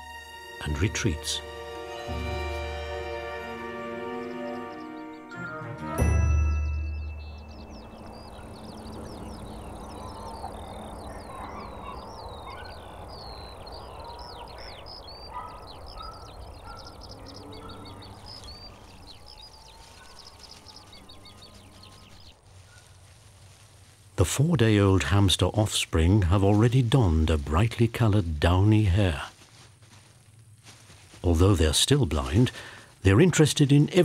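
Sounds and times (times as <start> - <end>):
small birds chirping: 0.6 - 5.9, 6.6 - 34.0
steady rushing outdoor noise: 7.3 - 33.9.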